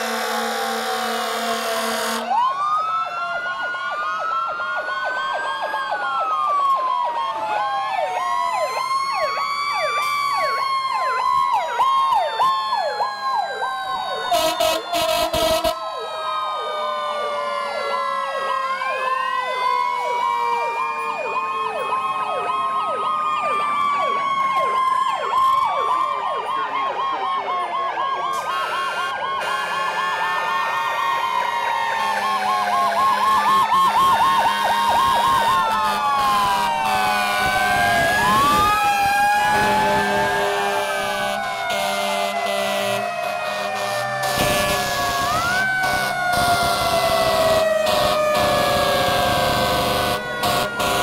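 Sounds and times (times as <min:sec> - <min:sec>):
loud horn blast: 0:00.0 - 0:02.4, 0:14.3 - 0:15.8, 0:28.4 - 0:30.2, 0:35.7 - 0:37.6, 0:39.5 - 0:51.0
wailing fire sirens: 0:00.0 - 0:51.0
fast electronic siren sweep: 0:08.7 - 0:27.5, 0:28.1 - 0:51.0.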